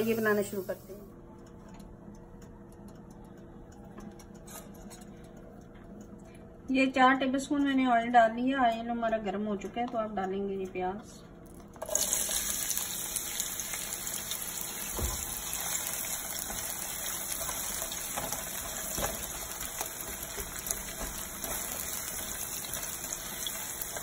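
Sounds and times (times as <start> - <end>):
onions sizzling in oil: 0.0 - 1.0, 11.8 - 24.0.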